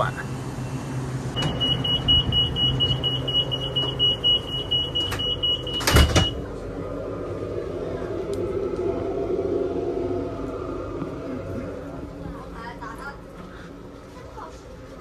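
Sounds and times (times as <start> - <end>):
train carriage hum: 0.0 - 15.0
sliding door shutting thump: 1.4 - 1.8, 5.0 - 6.4.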